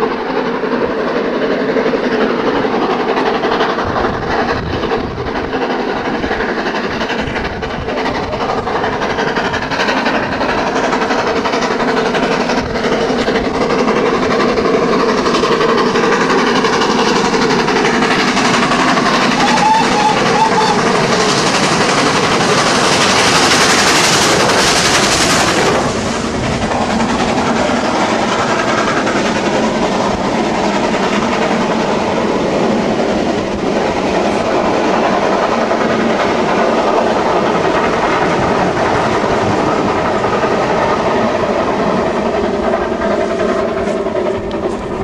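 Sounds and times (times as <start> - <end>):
coaches rolling on rails: 0.0 - 45.0
steam locomotive exhaust: 0.0 - 45.0.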